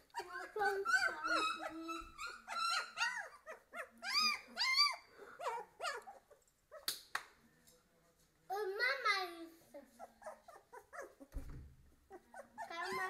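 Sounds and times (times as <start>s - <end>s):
puppies whimpering and squealing: 0.0s - 6.9s, 9.9s - 11.3s, 12.0s - 13.0s.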